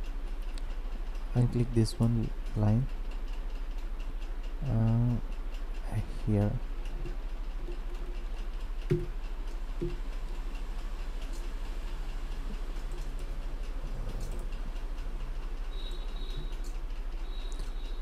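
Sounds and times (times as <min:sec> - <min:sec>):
low electrical hum fluttering: 0:00.0 - 0:18.0
short clicks: 0:15.8 - 0:18.0.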